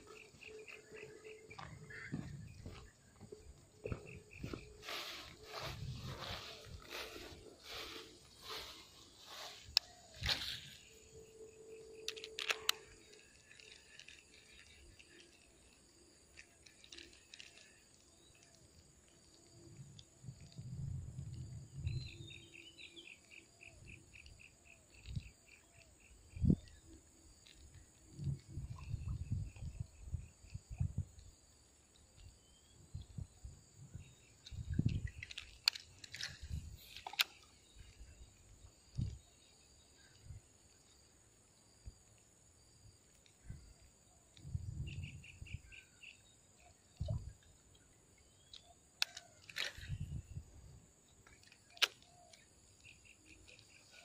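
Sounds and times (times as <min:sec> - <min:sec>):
high-pitched insect drone: 0:00.0 - 0:18.4
footsteps on earth bank: 0:01.5 - 0:09.6
dry grass crackling underfoot: 0:03.9 - 0:10.8.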